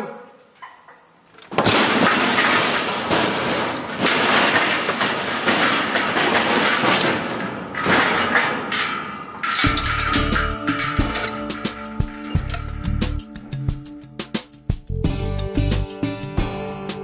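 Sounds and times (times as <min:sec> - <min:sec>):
metal rails rattling and banging: 0:00.6 - 0:15.9
music: 0:09.7 - 0:17.0.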